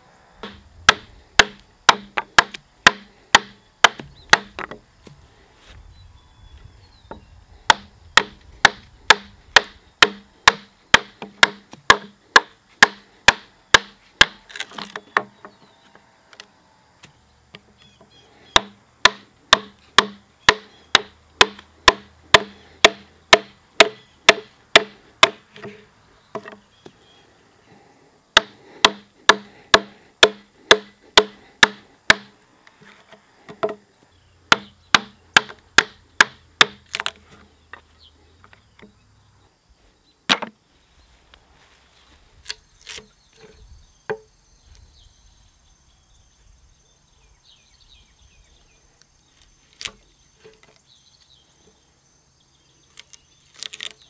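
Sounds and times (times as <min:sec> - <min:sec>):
mallet striking chisel into wood: 0:00.4 - 0:04.8, 0:07.7 - 0:14.4, 0:18.6 - 0:25.7, 0:28.4 - 0:32.3, 0:34.5 - 0:36.8.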